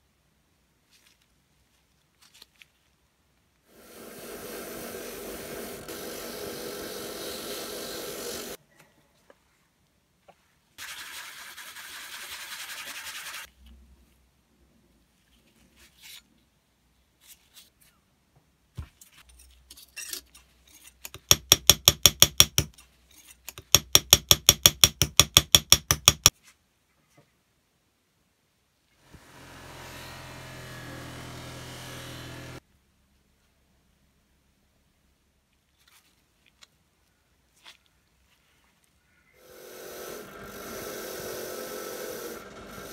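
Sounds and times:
drill press motor running: 3.7 - 8.6, 29.1 - 32.6, 39.4 - 42.9
small hammer tapping brass plate: 21.1 - 22.8, 23.5 - 26.3
steady machine sound: 39.4 - 42.9.

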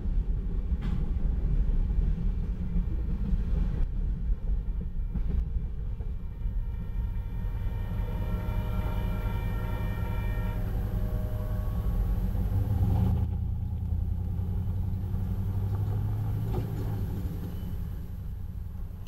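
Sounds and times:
railroad crossing bell ringing: 5.1 - 13.2.

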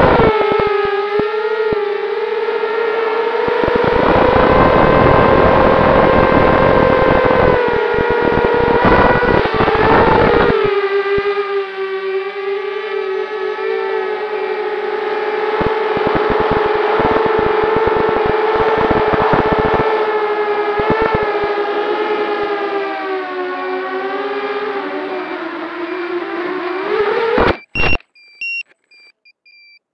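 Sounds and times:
quadcopter motors whining: 0.0 - 11.6, 12.8 - 22.8
crackling clicks: 7.4 - 11.3, 15.6 - 19.9, 20.7 - 21.3, 27.3 - 29.8
high electronic beeps: 27.4 - 29.8.

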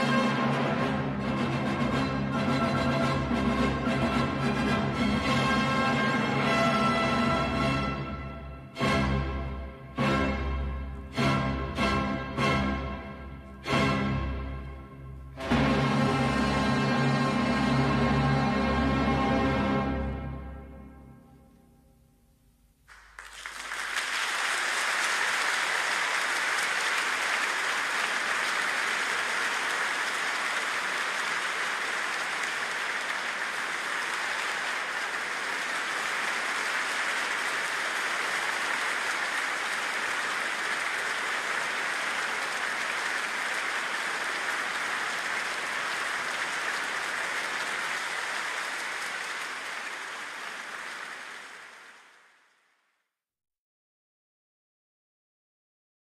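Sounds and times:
audience applauding: 22.9 - 52.9.

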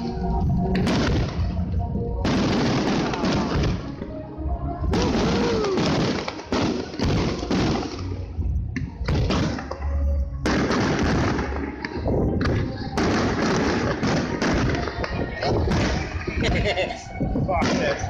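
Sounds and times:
fireworks booming: 0.7 - 4.1, 4.9 - 8.4, 9.0 - 9.7, 10.4 - 16.7, 17.6 - 18.0
fireworks crackling: 0.8 - 4.1, 4.9 - 8.4, 10.4 - 17.0.

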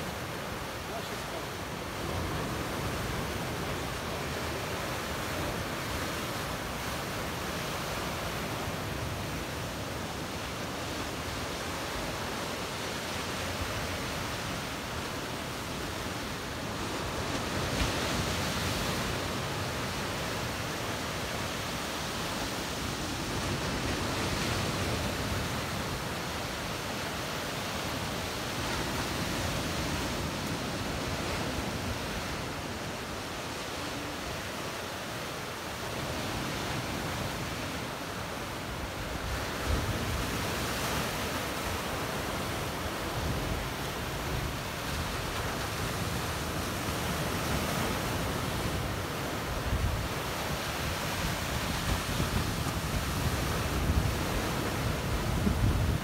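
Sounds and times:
small waves breaking on shore: 0.0 - 56.0.

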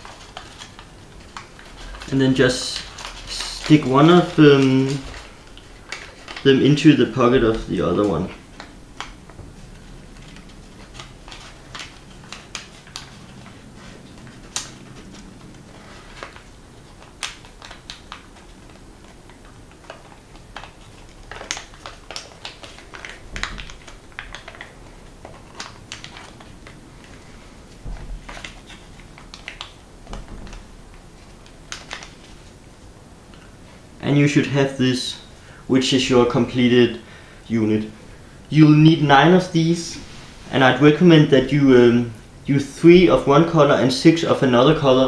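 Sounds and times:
paper crinkling and crackling: 0.0 - 33.8.

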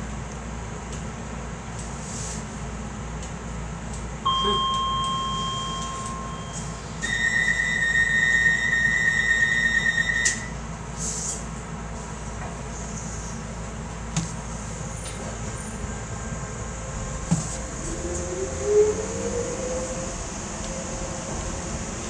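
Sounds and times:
electronic chime: 4.3 - 8.4
door warning tone: 4.3 - 10.6.

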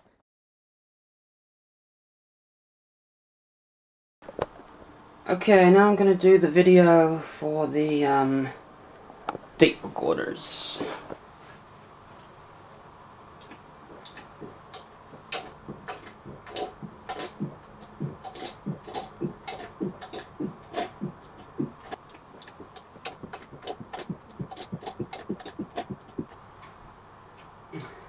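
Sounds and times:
man gulping a drink: 13.4 - 26.4.

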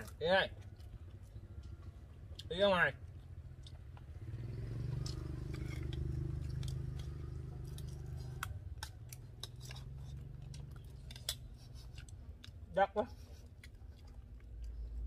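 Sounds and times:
sharp clicks and crunches: 0.0 - 4.2, 4.8 - 12.8
low motor hum: 3.0 - 11.8.

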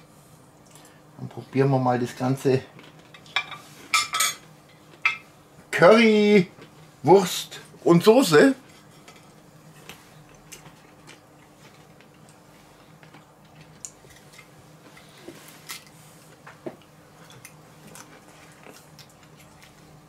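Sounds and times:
man chewing: 9.7 - 20.0.

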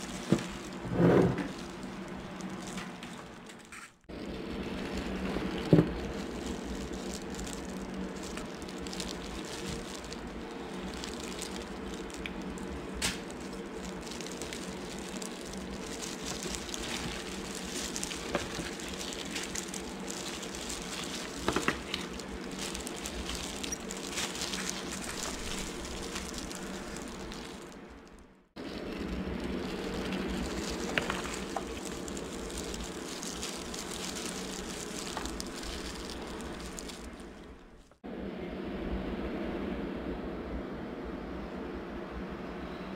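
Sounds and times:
gloves and foil crinkling: 0.0 - 38.0
steady low hum: 0.0 - 42.9
meat tearing wetly: 4.8 - 27.8, 29.0 - 37.6.

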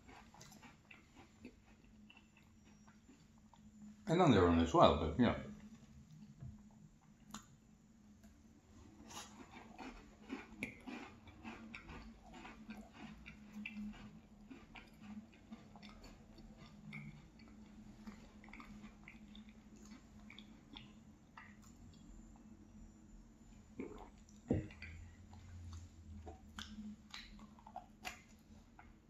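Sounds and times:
chewing cookie close up: 0.0 - 4.8, 8.2 - 22.9, 23.5 - 29.0
wet mouth clicks and smacks: 26.2 - 28.4.

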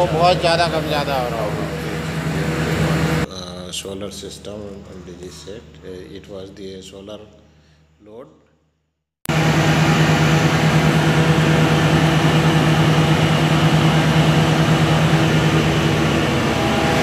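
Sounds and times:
diesel generator running: 0.0 - 3.5, 9.3 - 17.0.

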